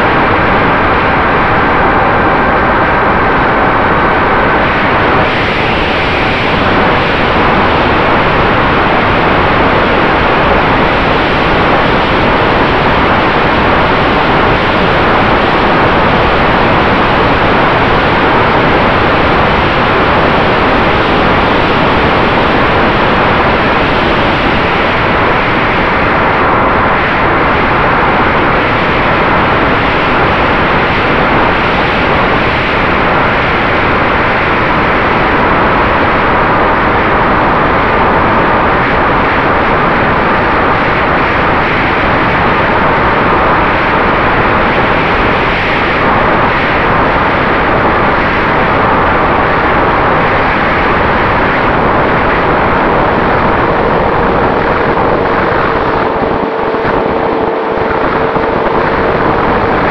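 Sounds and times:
propeller noise: 1.7s - 35.4s, 47.9s - 59.9s
wind rushing: 51.0s - 59.9s
electric motor whine: 53.8s - 59.9s.

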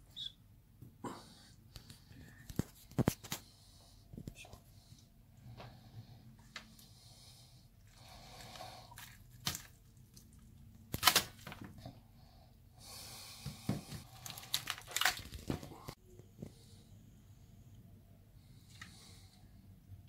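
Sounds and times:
wet tearing of meat: 7.9s - 11.6s, 14.1s - 15.7s
sharp clicks and cracks: 10.9s - 11.6s, 14.2s - 16.0s.

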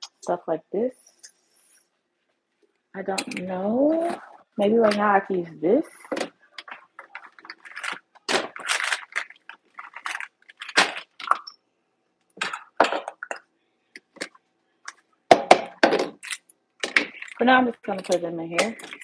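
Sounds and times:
kitchen utensils clinking and rattling: 6.0s - 11.5s, 16.0s - 19.0s.

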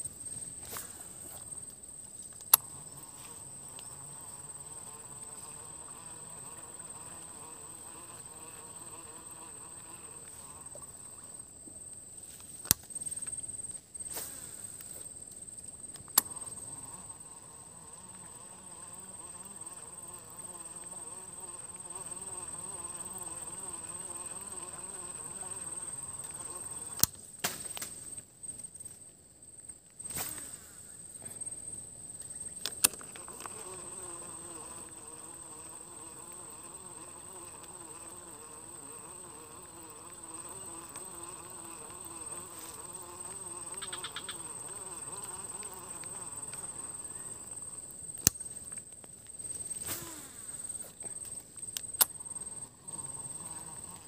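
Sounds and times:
insect buzzing: 0.0s - 29.0s, 30.0s - 54.0s
sharp clicks: 32.6s - 33.6s, 51.2s - 52.2s.

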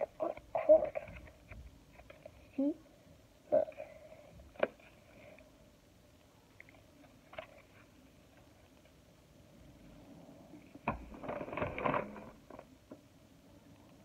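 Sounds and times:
rustling and shuffling: 6.8s - 12.8s.

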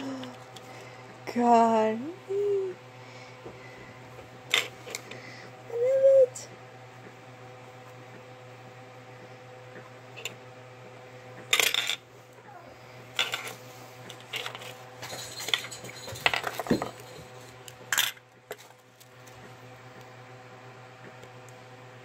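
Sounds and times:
metal ball chain clinking: 15.0s - 17.3s.

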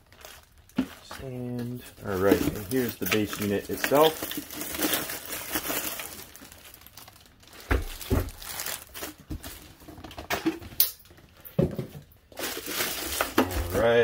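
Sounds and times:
plastic bag crinkling: 0.0s - 10.1s, 12.3s - 14.0s.

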